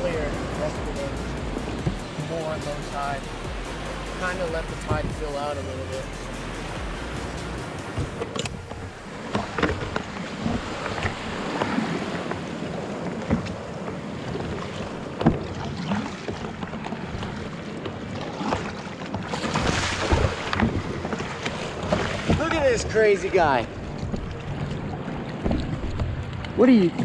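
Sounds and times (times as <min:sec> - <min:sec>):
paddle strokes splashing: 0:00.0 - 0:27.0
surf rushing: 0:00.0 - 0:27.0
water splashing around kayak: 0:00.0 - 0:27.0
wind buffeting microphone: 0:04.4 - 0:05.5, 0:20.0 - 0:27.0.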